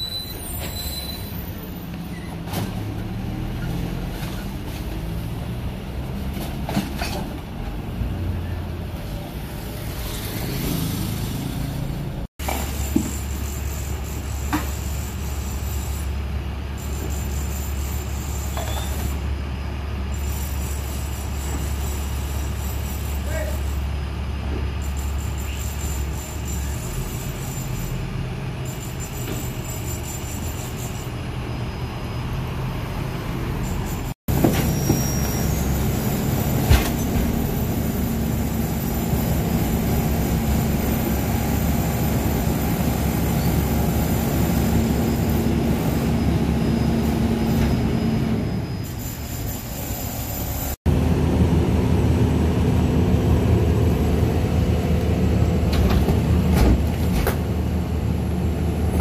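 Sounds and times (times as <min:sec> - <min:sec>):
garbage truck diesel engine: 0:00.0 - 0:59.0
hydraulic compactor working: 0:12.4 - 0:59.0.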